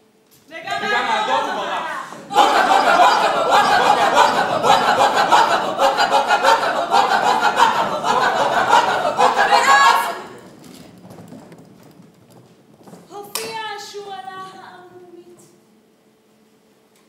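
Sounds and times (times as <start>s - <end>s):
crowd laughing loudly: 0.7s - 10.6s.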